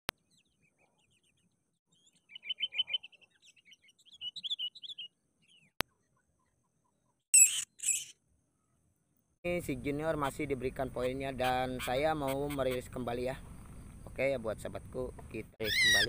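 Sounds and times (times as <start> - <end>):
birds chattering: 2.0 - 5.7, 10.7 - 14.2, 15.0 - 16.0.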